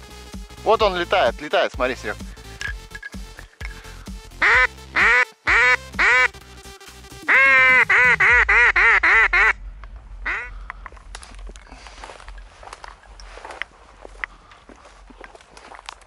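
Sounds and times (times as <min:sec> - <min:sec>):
duck quacking: 0:04.4 - 0:06.3, 0:07.2 - 0:09.6, 0:10.2 - 0:10.5.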